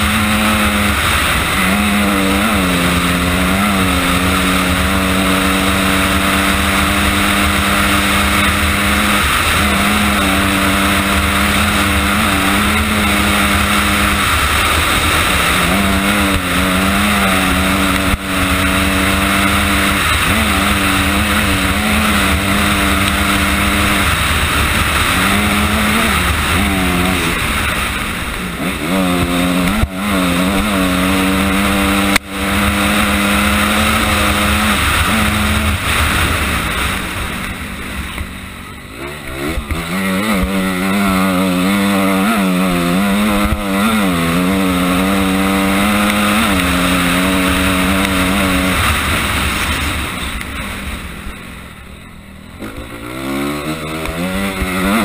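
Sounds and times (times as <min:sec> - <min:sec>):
wind rush: 0:00.0 - 0:38.1
dirt bike engine revving: 0:00.0 - 0:55.0.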